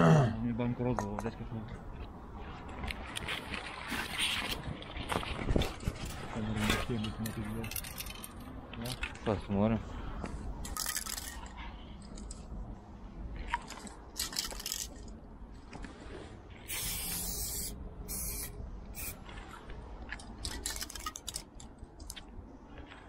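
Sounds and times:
spray-paint cans hissing: 0:16.7 - 0:19.2.

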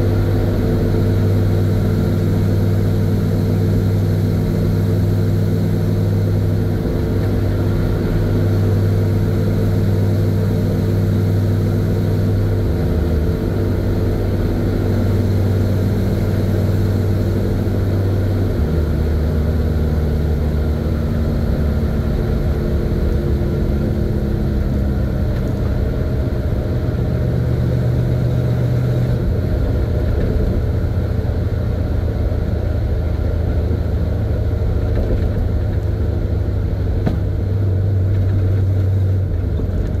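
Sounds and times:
road noise: 0:00.0 - 0:40.0
truck engine running: 0:00.0 - 0:40.0.

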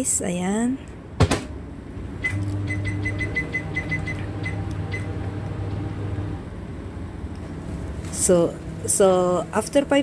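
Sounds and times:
microwave humming: 0:01.2 - 0:10.0
keypad beeps: 0:02.2 - 0:05.2.

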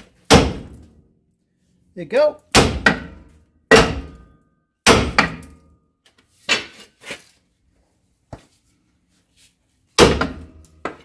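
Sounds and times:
sledgehammer striking metal: 0:00.2 - 0:01.0, 0:02.5 - 0:05.8, 0:10.0 - 0:11.0.

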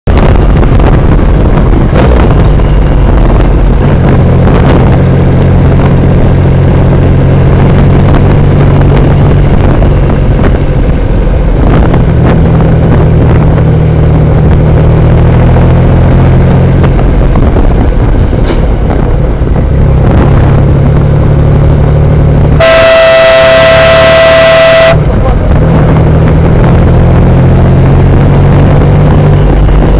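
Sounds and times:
wind noise: 0:00.0 - 0:29.9
motorcycle engine at speed: 0:00.1 - 0:29.9
vehicle horn blast: 0:22.6 - 0:25.4.

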